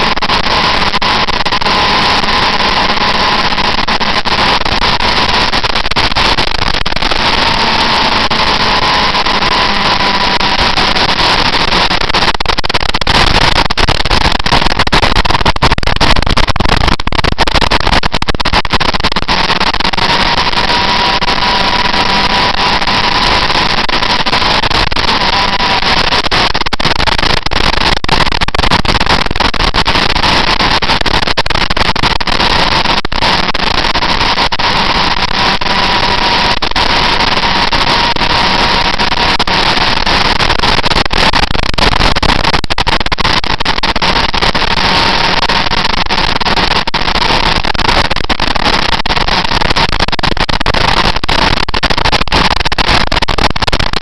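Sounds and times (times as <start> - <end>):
motorcycle engine steady high note: 7.5 - 11.0.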